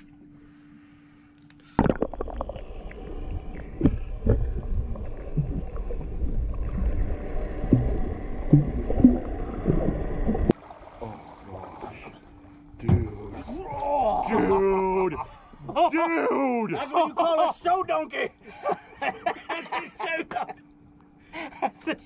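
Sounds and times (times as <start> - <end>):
faint steady hum: 0.0 - 22.0
muffled underwater rumble: 1.8 - 15.0
water gurgles: 1.8 - 15.0.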